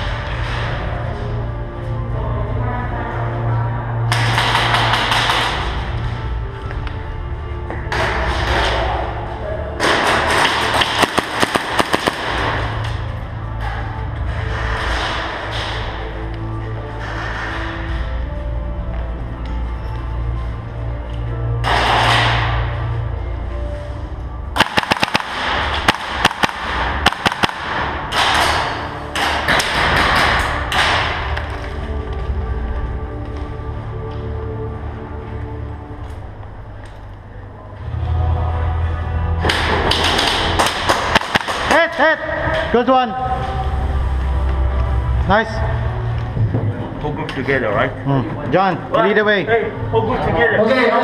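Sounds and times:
airsoft gunshots: 9.9 - 12.7, 24.6 - 28.4.

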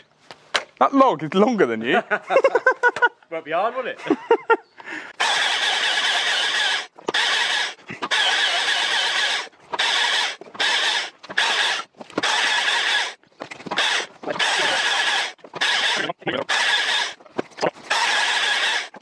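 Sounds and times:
chainsaw cutting logs: 5.1 - 19.0.

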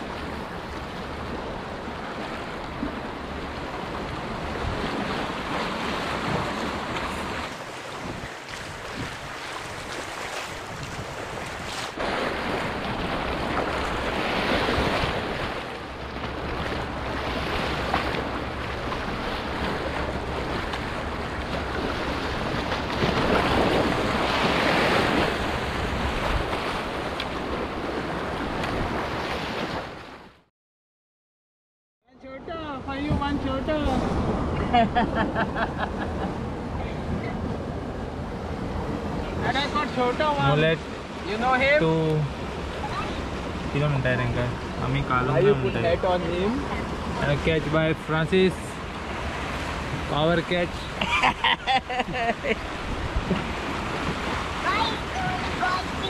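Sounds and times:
sea waves splashing against rocks: 0.0 - 30.1
wind buffeting microphone: 3.9 - 29.8, 52.5 - 56.0.

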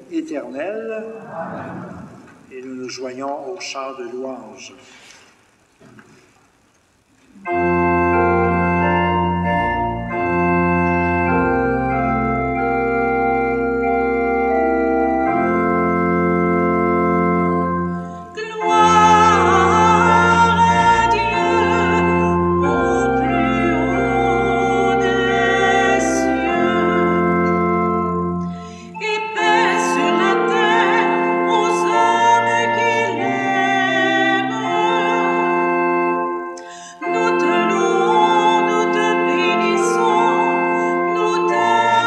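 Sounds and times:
church organ chords: 7.4 - 42.0
woman singing with vibrato: 18.2 - 27.4, 28.8 - 35.9, 36.7 - 42.0.

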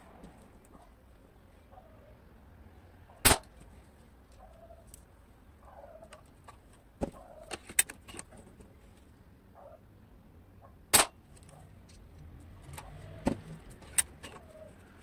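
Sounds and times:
airsoft rifle shot: 3.2 - 3.5, 10.9 - 11.2.

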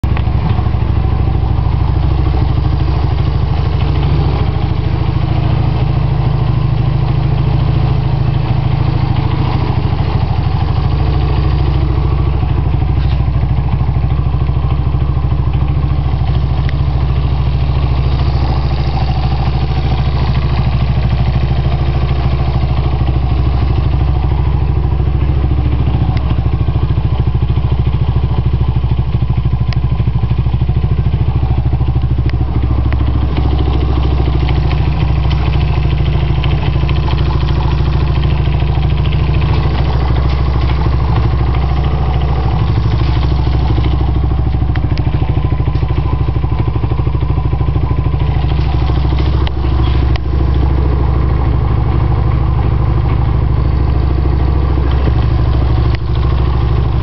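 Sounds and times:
single-cylinder engine running: 0.0 - 57.0.

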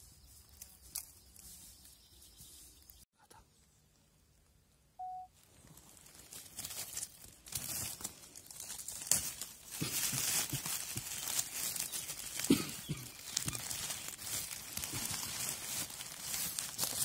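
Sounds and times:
dry leaves rustling and crackling: 0.0 - 3.0, 5.4 - 17.0
short steady tone: 5.0 - 5.3.

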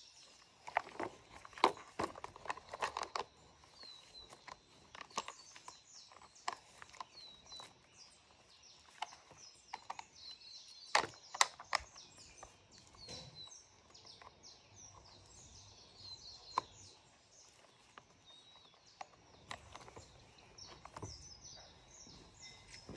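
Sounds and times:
birds chirping: 0.0 - 22.9
plastic and metal clicks and knocks: 0.6 - 8.0, 8.8 - 15.0, 17.8 - 21.3.

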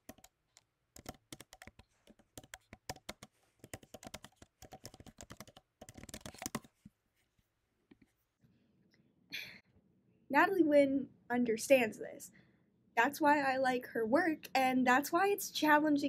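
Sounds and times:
typing on computer keyboard: 0.0 - 6.7.

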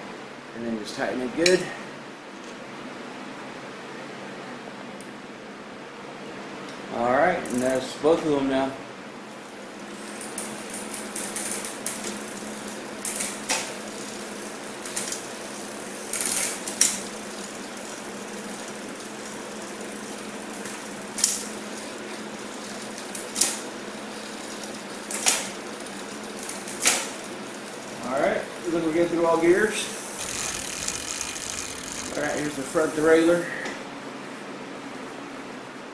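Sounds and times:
bicycle chain running over gears: 10.0 - 33.3.

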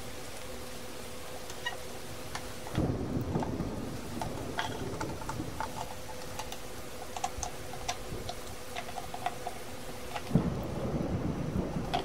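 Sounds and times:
faint steady hum: 0.0 - 12.0
hand tools clicking on plastic parts: 4.2 - 10.4, 11.8 - 12.0.

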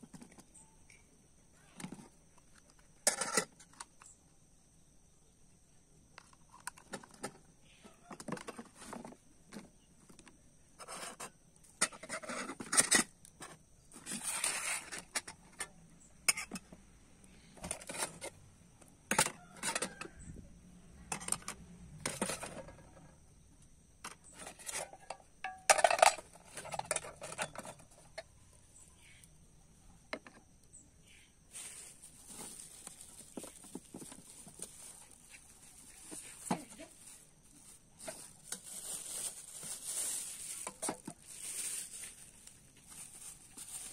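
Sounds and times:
plastic bowls and metal pots knocking: 6.6 - 10.2, 24.0 - 28.3
plastic wrapping rustling: 31.5 - 43.9.

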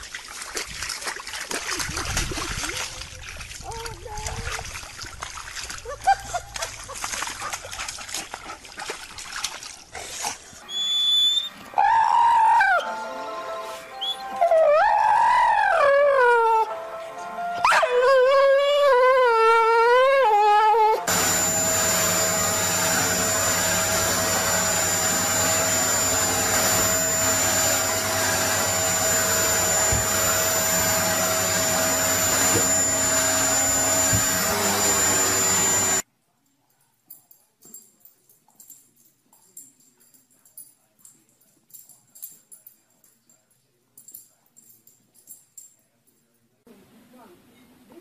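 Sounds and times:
dog howling: 11.7 - 13.0, 14.3 - 16.7, 17.6 - 21.1
vacuum cleaner running: 21.0 - 36.0.

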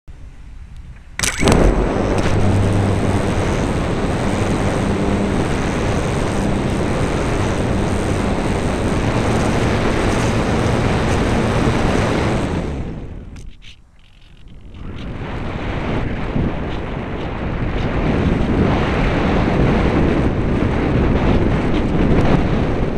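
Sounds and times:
air rushing past: 1.2 - 13.4
electric motor and propeller: 1.2 - 22.9.

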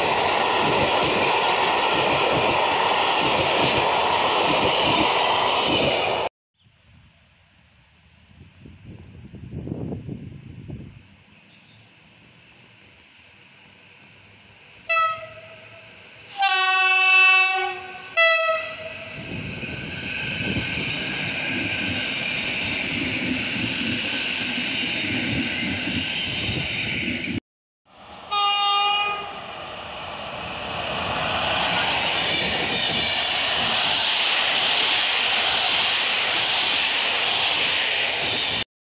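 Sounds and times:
train rumble and wheel noise: 0.0 - 6.3, 7.6 - 38.6
train horn blasts: 14.8 - 19.2, 28.3 - 29.4
locomotive horn blast: 14.9 - 19.2, 28.3 - 29.4.

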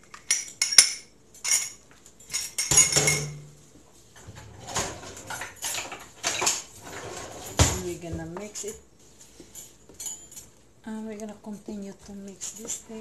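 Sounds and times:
utensils rattling: 0.0 - 3.6, 4.2 - 10.6
dishes and utensils clinking: 0.0 - 10.6
drawer opening: 4.2 - 8.0.

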